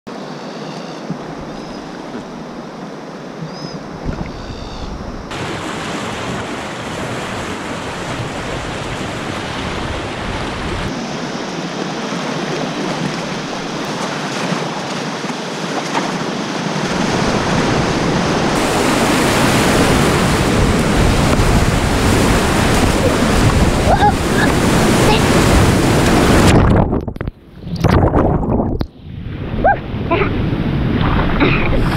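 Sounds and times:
rushing river water: 0:05.3 - 0:26.9.

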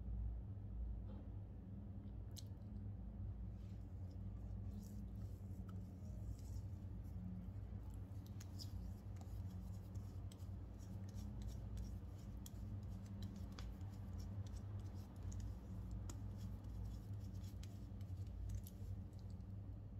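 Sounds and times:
steady low hum: 0:00.0 - 0:19.9
fingertips patting on gel skin: 0:07.8 - 0:19.3.

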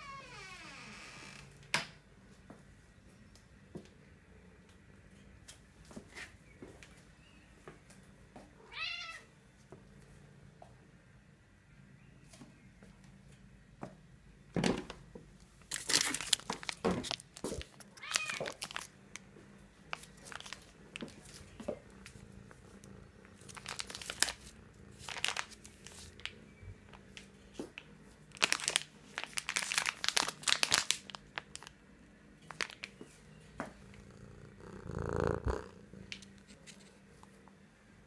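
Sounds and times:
foil bag crinkling: 0:15.7 - 0:18.9, 0:19.9 - 0:21.5, 0:23.4 - 0:26.3, 0:28.3 - 0:31.7, 0:32.5 - 0:32.9.

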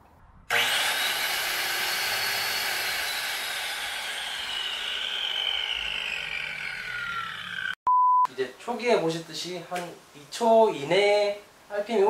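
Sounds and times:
angle grinder whine: 0:00.5 - 0:07.8.

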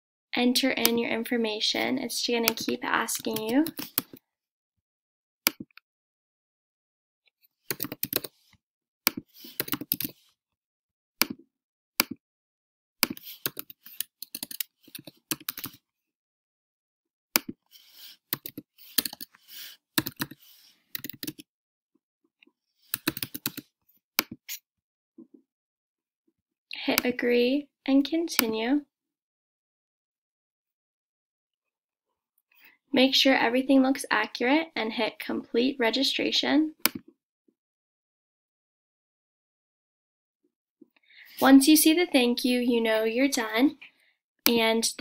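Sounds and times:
computer keyboard typing: 0:02.4 - 0:04.2, 0:07.7 - 0:08.3, 0:09.1 - 0:10.2, 0:13.0 - 0:15.8, 0:18.3 - 0:19.4, 0:20.0 - 0:20.4, 0:21.0 - 0:21.4, 0:22.9 - 0:23.6.

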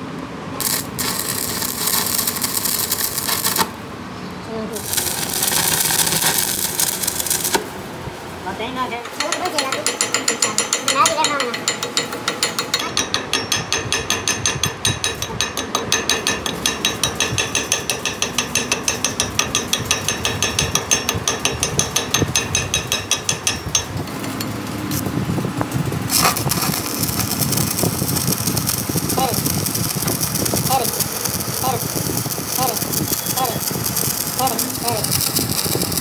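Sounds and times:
machine running: 0:00.6 - 0:03.8, 0:04.8 - 0:07.9, 0:16.2 - 0:36.0.

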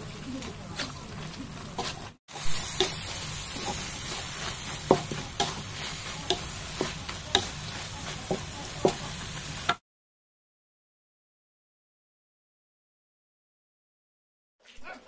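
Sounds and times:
chicken sizzling in a wok: 0:00.0 - 0:09.8
spatula scraping a wok: 0:00.2 - 0:09.8.

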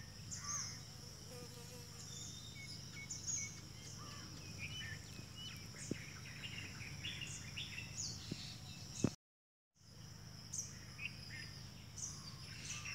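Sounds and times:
high insect drone: 0:00.0 - 0:09.0, 0:09.8 - 0:12.9
birds chirping: 0:01.9 - 0:09.2.

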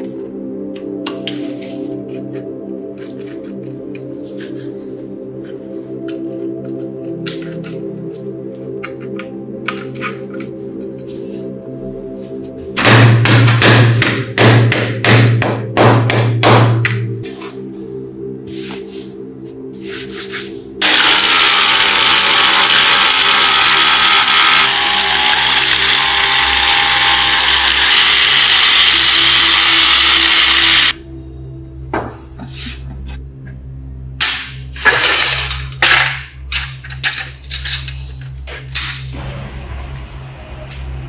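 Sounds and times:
background music: 0:00.0 - 0:41.0
angle grinder on metal: 0:20.8 - 0:31.0.

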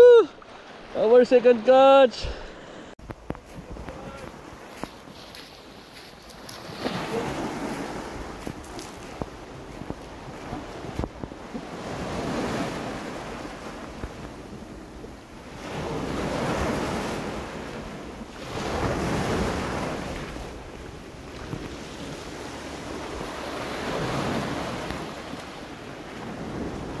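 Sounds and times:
sea waves washing around legs: 0:02.3 - 0:14.9, 0:15.5 - 0:27.0
wind rumbling on microphone: 0:02.8 - 0:27.0.

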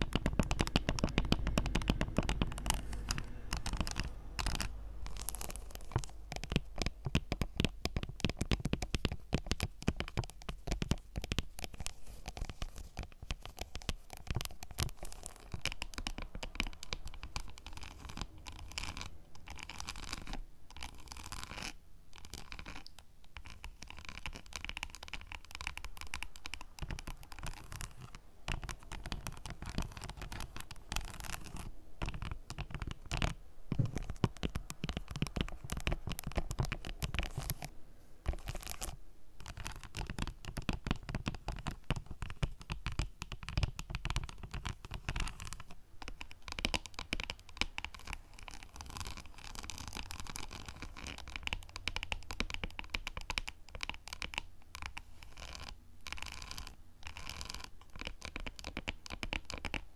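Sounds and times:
fingernails tapping on chocolate: 0:00.1 - 0:02.6.

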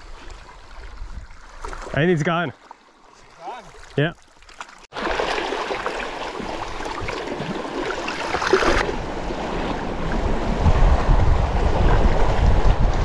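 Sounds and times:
wind buffeting microphone: 0:08.8 - 0:13.0.

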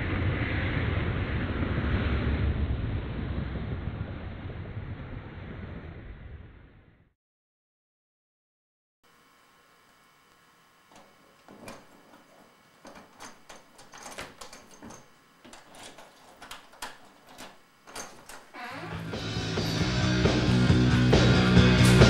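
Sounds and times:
light clicks and knocks: 0:10.9 - 0:18.9
music: 0:18.6 - 0:22.0.

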